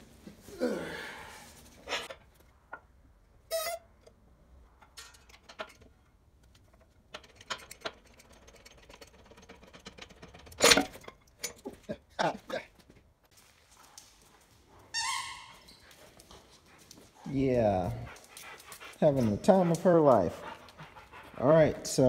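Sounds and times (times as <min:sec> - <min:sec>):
metal clicks and knocks: 0:04.8 - 0:12.3.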